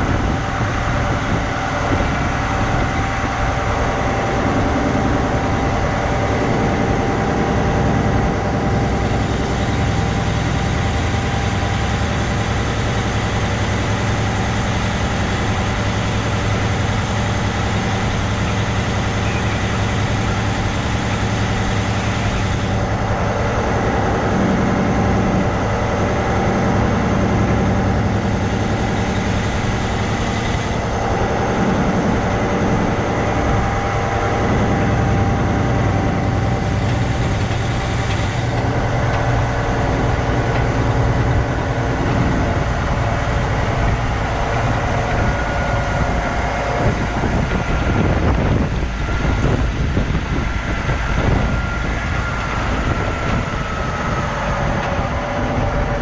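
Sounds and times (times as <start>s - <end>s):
truck diesel engine running: 0.0s - 56.0s.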